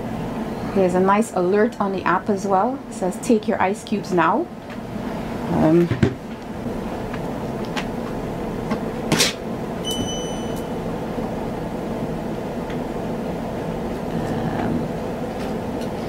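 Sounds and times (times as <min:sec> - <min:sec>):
fridge compressor and fan humming: 0:00.0 - 0:16.0
brief electronic beep: 0:09.8 - 0:10.7.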